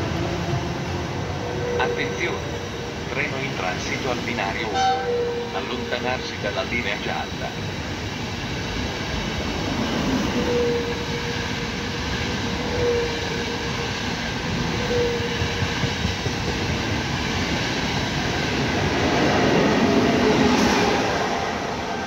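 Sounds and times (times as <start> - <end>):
electric locomotive passing: 0.0 - 22.0
train wheels clattering over rails: 13.2 - 21.6.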